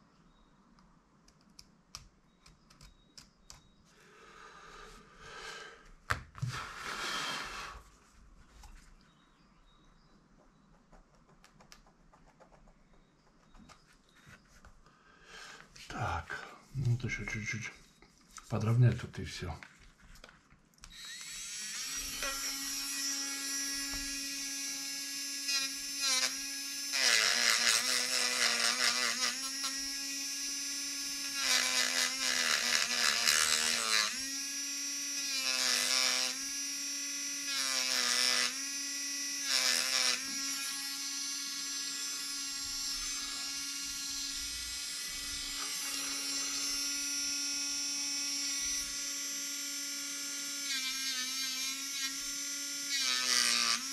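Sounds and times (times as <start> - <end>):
rotary tool whining: 20.9 - 53.9
rotary tool grinding plastic: 25.3 - 53.9.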